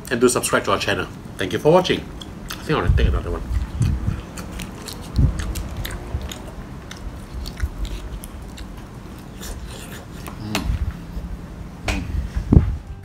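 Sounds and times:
person chewing food: 2.1s - 11.0s.

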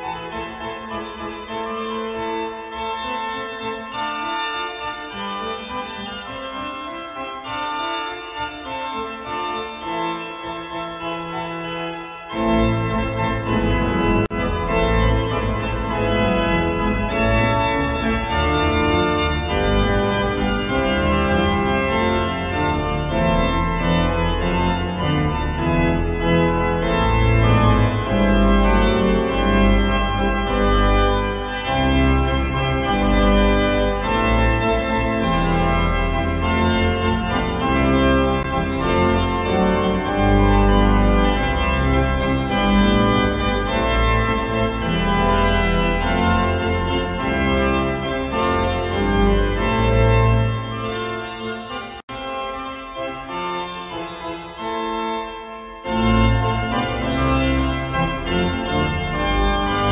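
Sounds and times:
church organ chords: 0.0s - 59.9s
deep organ bass notes: 9.2s - 51.9s.

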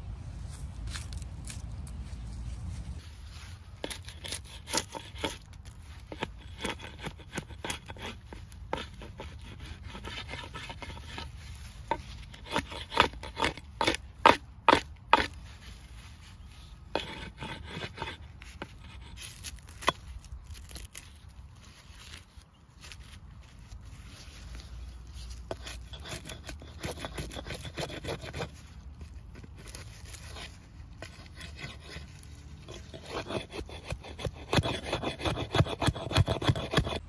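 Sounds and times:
hatchet striking a branch: 19.2s - 21.0s.

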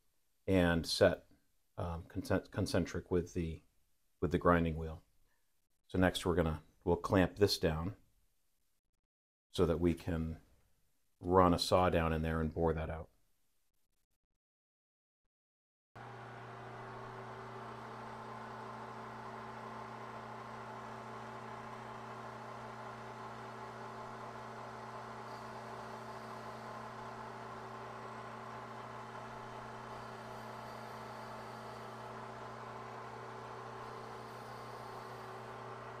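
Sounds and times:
end mill cutting plastic: 16.0s - 36.0s
milling machine motor hum: 16.0s - 36.0s.

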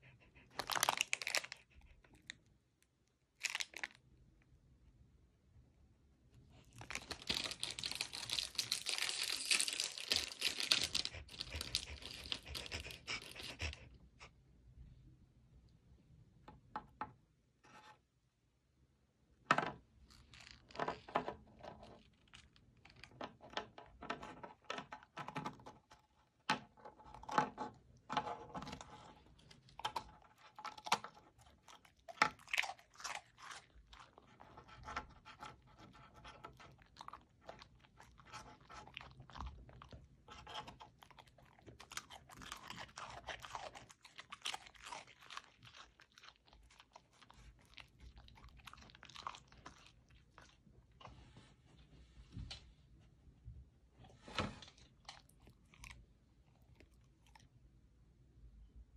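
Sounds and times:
dog licking and nibbling cookie: 0.0s - 2.3s, 6.8s - 13.9s, 29.5s - 51.2s, 54.8s - 57.6s
plastic packet crinkling: 6.8s - 12.2s.

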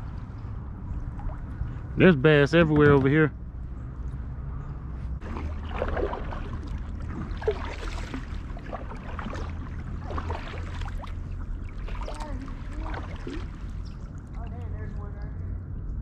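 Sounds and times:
kayak paddle splashing: 5.2s - 14.7s.

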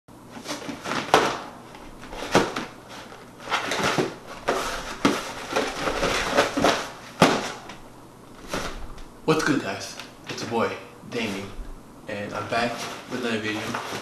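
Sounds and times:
packed bars rustling: 0.3s - 7.7s.

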